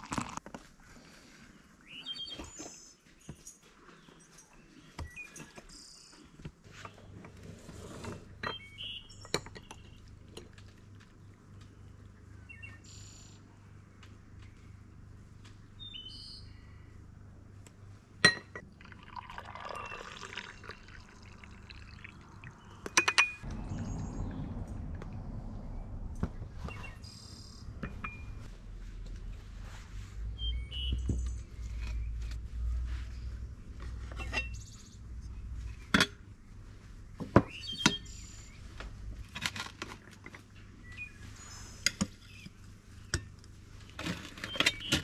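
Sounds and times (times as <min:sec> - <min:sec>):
birds chirping: 0:08.4 - 0:10.1, 0:11.2 - 0:13.4, 0:21.9 - 0:24.9, 0:25.5 - 0:28.5, 0:30.3 - 0:33.4, 0:37.2 - 0:38.8
liquid being poured: 0:18.6 - 0:22.9
low rumble: 0:23.4 - 0:30.7.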